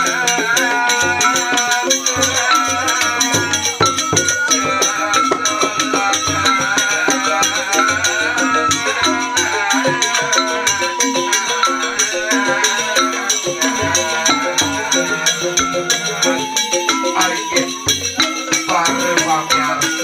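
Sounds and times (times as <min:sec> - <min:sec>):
bamboo flutes: 0:00.0 - 0:20.0
bamboo xylophones in rapid runs: 0:00.0 - 0:20.0
hand drum beats: 0:00.0 - 0:20.0.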